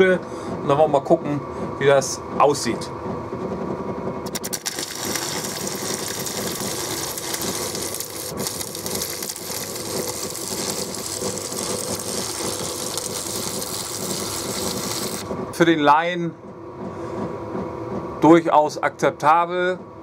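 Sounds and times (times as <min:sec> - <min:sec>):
welding arc crackling and sizzling: 0:04.2 - 0:15.3
welder hum: 0:04.2 - 0:15.7.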